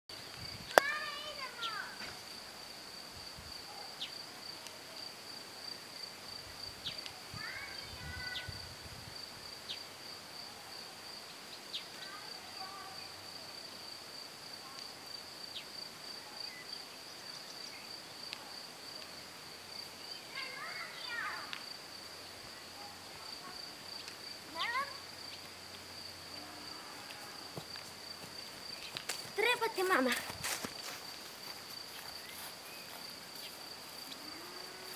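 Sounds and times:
insects trilling: 0.1 - 34.9
faint clicks: 21.5 - 21.7, 24.0 - 24.2.

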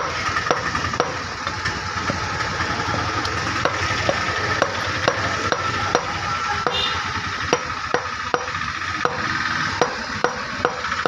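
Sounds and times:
cleaver chopping on wooden block: 0.0 - 1.2, 7.5 - 11.0.

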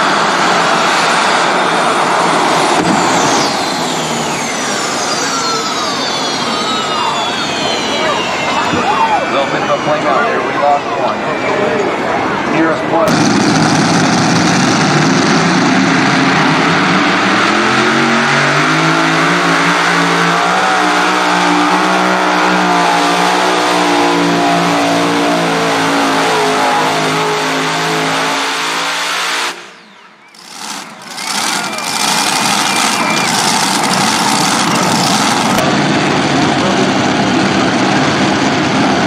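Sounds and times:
racing engines at full throttle: 0.0 - 39.0.

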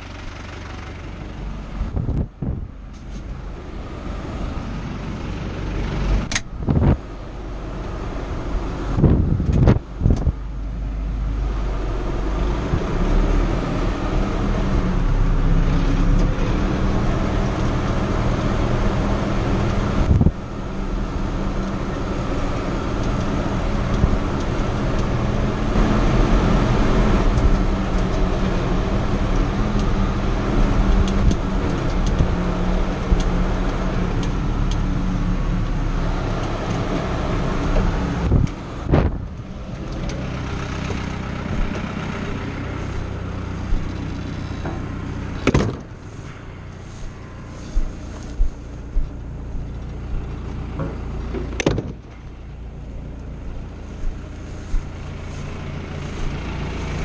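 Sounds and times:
tractor diesel engine running: 0.0 - 57.0
sharp knocks: 45.4 - 45.9.

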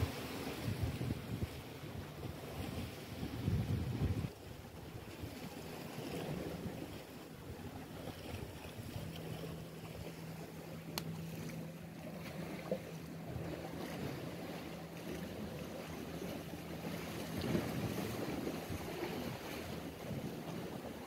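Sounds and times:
wind buffeting microphone: 0.0 - 7.6, 13.2 - 21.0.

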